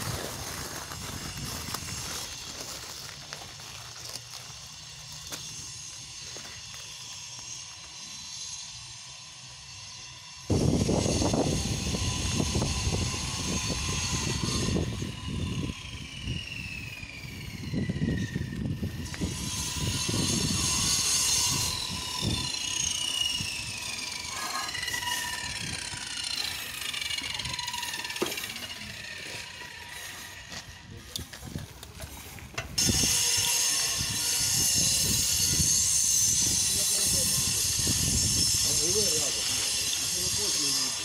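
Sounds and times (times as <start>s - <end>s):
bicycle freewheel ticking: 21.9s - 28.9s.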